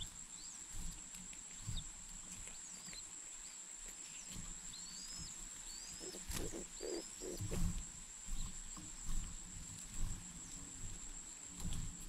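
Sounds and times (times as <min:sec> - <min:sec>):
soft thumps of movement: 0:04.0 - 0:12.0.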